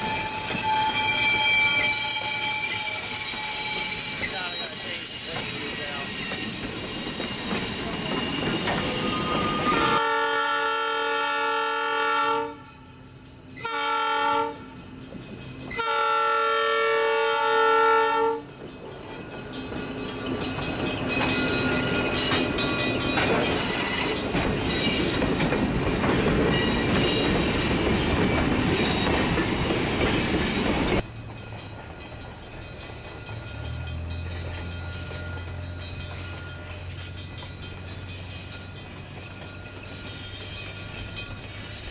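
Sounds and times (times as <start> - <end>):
train wheels clicking over rail joints: 0.0 - 10.0, 18.4 - 41.9
distant train engine hum: 0.0 - 41.9
railcars rumbling: 0.0 - 41.9
locomotive horn blasts: 9.7 - 12.7, 13.6 - 14.8, 15.7 - 18.4.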